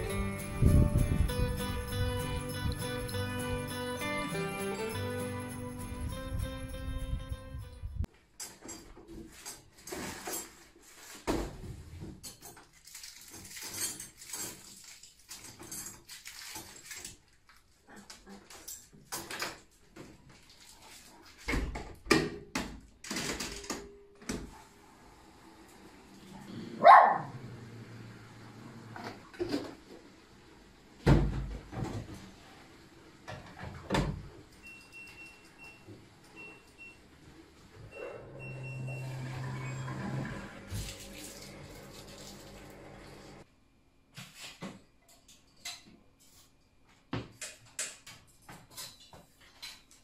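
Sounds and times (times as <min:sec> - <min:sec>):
dog barking: 0:26.8 - 0:27.4.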